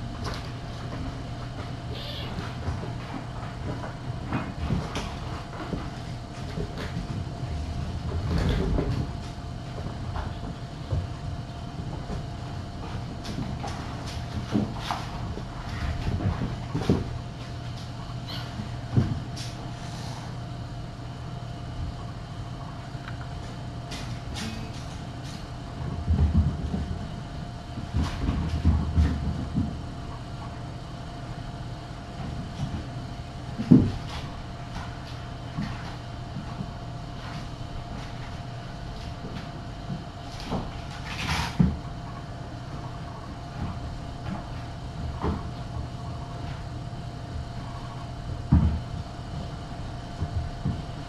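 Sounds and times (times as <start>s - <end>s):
steady electrical hum: 0.0s - 51.0s
kittens thumping and bumping: 0.2s - 11.2s.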